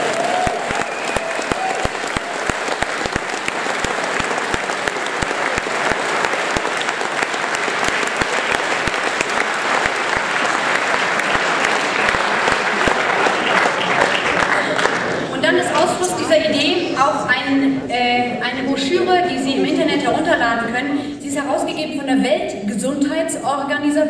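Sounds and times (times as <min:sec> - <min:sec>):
audience applauding: 0:00.0 - 0:16.0.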